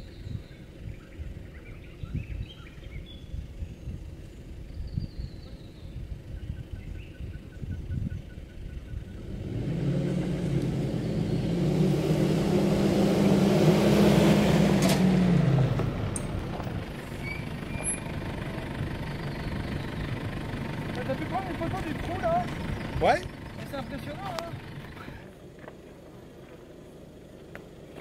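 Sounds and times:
tyres on dirt track: 0:00.0 - 0:28.0
suv engine passing by: 0:08.8 - 0:28.0.

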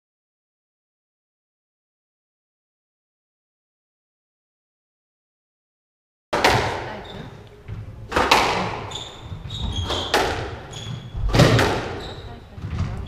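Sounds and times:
racket hitting ball: 0:06.4 - 0:06.9, 0:08.1 - 0:12.2
ball hitting walls: 0:06.4 - 0:07.0, 0:07.7 - 0:13.0
shoe squeaks on wooden floor: 0:06.9 - 0:07.4, 0:08.6 - 0:13.0.

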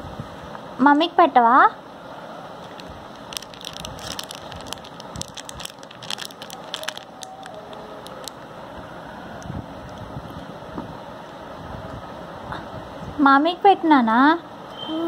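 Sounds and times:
plastic wrapper crinkling: 0:02.6 - 0:08.5.

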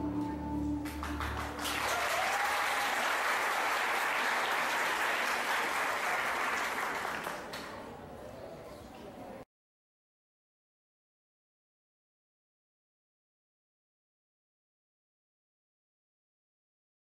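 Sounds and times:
music: 0:00.0 - 0:01.9
audience clapping: 0:00.8 - 0:07.9.

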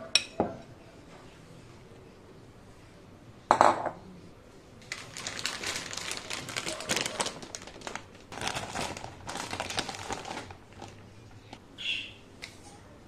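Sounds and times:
plastic bread bag crinkling: 0:04.8 - 0:11.2.

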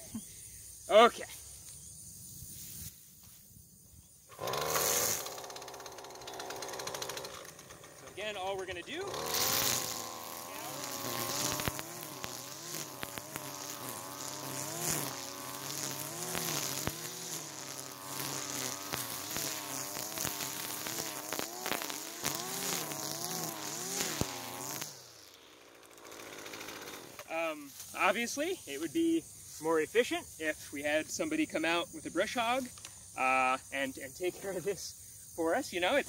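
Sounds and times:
string trimmer cutting grass: 0:04.3 - 0:28.2
sharp clicks: 0:10.7 - 0:14.0.

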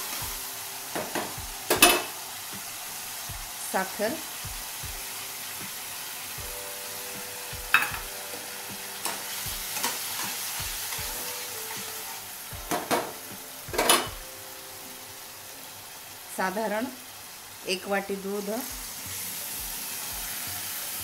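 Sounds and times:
food sizzling in a pan: 0:00.0 - 0:21.0
spatula scraping a pan: 0:07.8 - 0:13.0.

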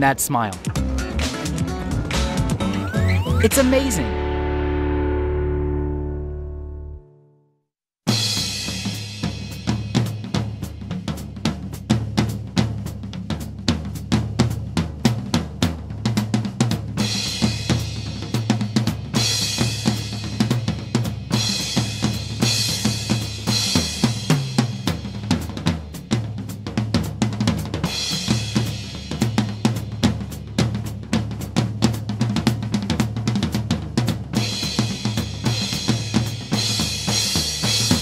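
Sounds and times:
drum kit beat: 0:00.0 - 0:04.3, 0:08.1 - 0:38.0
bass line: 0:00.0 - 0:07.4.

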